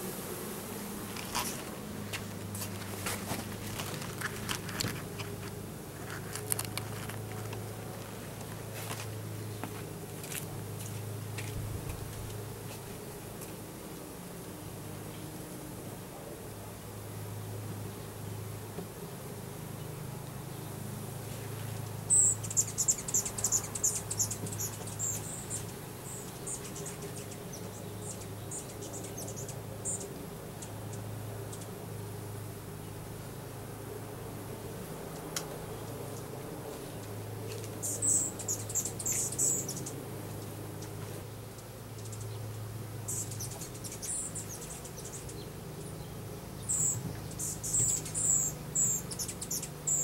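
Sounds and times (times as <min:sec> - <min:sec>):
bees buzzing: 0:00.0 - 0:50.0
handling clicks and rustles: 0:01.1 - 0:12.4
footsteps: 0:01.1 - 0:13.6.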